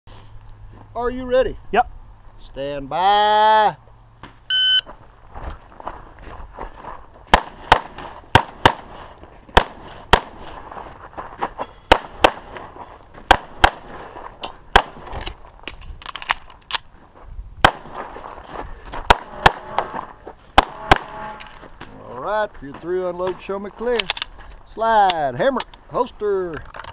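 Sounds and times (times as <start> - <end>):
shot timer beep: 4.5 - 4.9
pistol shots: 7.3 - 8.9, 9.5 - 10.6, 11.9 - 12.7, 13.3 - 14.1, 14.7 - 15.1, 17.6 - 18.1, 19.1 - 20.0, 20.6 - 21.5.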